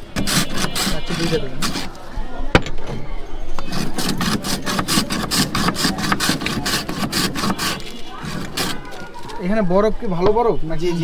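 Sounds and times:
ice scraping strokes: 0:00.0 - 0:02.1, 0:03.6 - 0:09.6.

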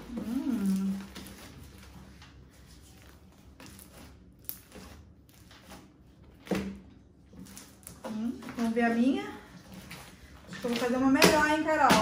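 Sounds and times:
sticky slime sounds: 0:00.0 - 0:12.0.

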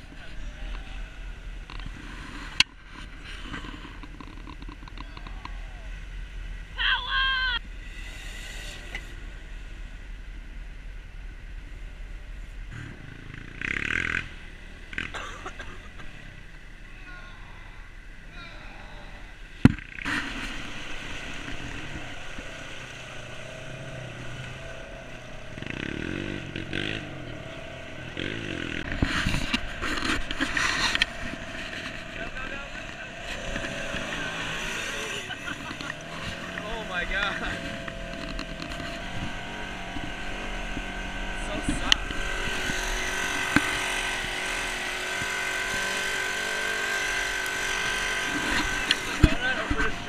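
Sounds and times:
atv engine revving: 0:00.0 - 0:50.0
tyres churning through muddy water: 0:20.0 - 0:50.0.

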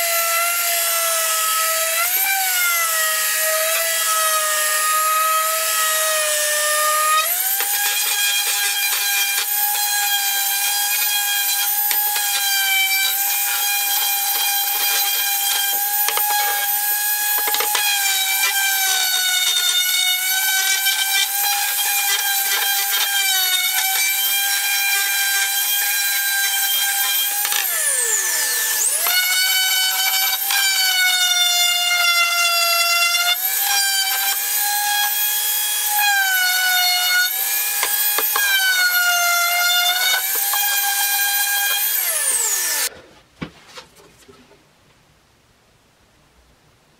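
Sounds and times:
orbital sander motor whine: 0:03.5 - 0:42.9
sandpaper rasping on wood: 0:07.4 - 0:31.1.

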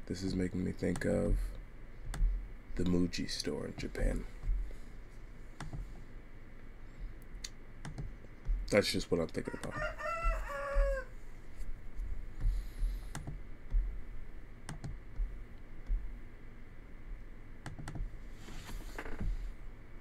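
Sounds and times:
computer keyboard and mouse clicks: 0:05.6 - 0:05.9, 0:07.8 - 0:08.2, 0:13.1 - 0:13.4, 0:14.7 - 0:15.0, 0:17.6 - 0:18.1.

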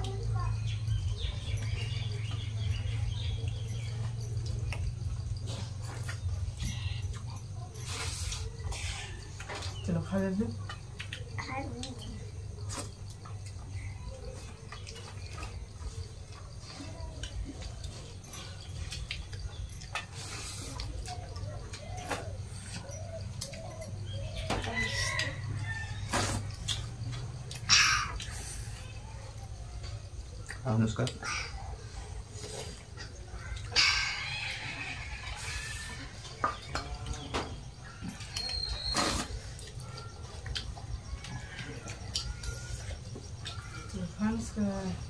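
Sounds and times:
chewing: 0:00.0 - 0:09.9, 0:10.5 - 0:45.0
pigeon cooing: 0:20.2 - 0:26.5.

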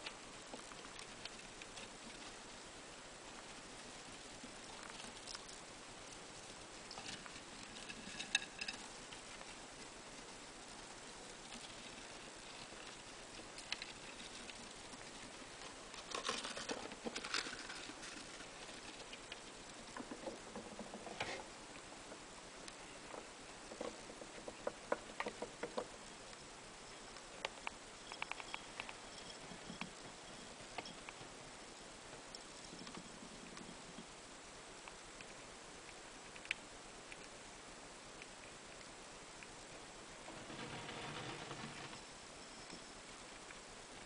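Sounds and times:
small rodent scratching on bedding: 0:40.2 - 0:42.1.

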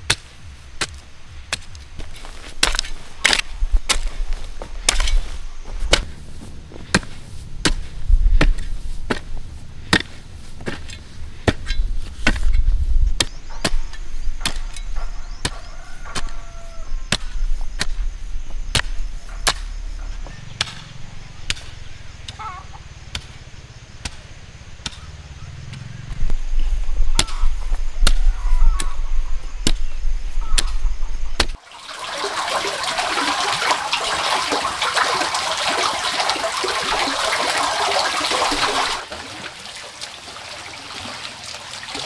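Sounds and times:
chopping strikes: 0:18.6 - 0:23.4.

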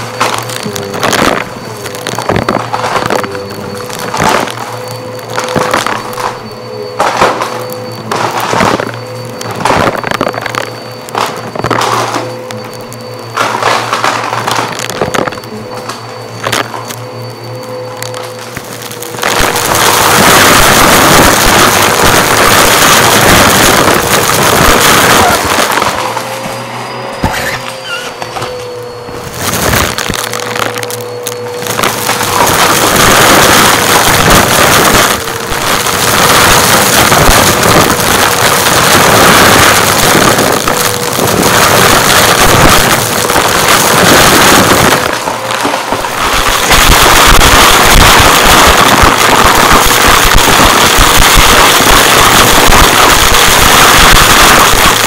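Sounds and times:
vacuum cleaner motor whine: 0:00.0 - 0:55.0
confetti rattling up vacuum head: 0:29.3 - 0:55.0.

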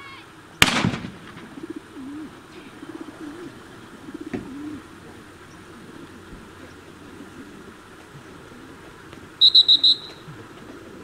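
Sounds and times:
loud gunshot: 0:00.6 - 0:01.5
light crack: 0:00.6 - 0:01.6
low wavering calls: 0:01.4 - 0:11.0.

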